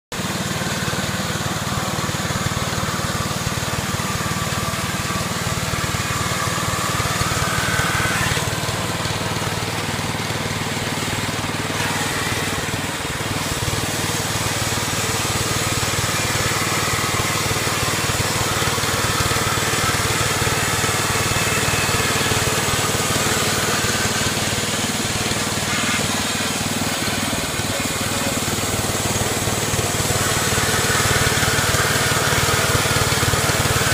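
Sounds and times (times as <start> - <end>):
small gasoline engine running: 0.1 - 33.9.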